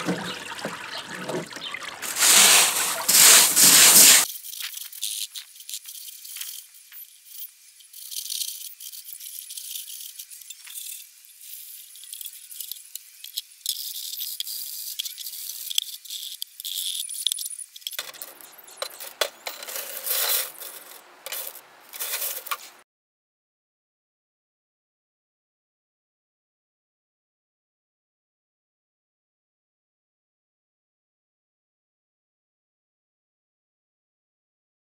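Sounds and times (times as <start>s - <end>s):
glass clattering on wire mesh: 18.0s - 22.6s
glass pieces clinking and rattling: 18.0s - 22.6s.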